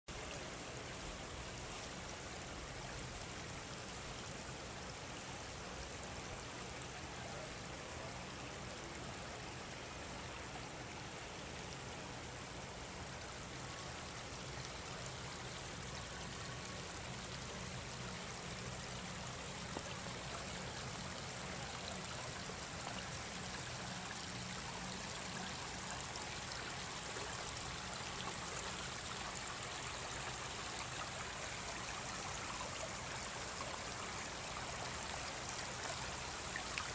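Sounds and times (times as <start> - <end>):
creek running over stones: 0.1 - 36.9.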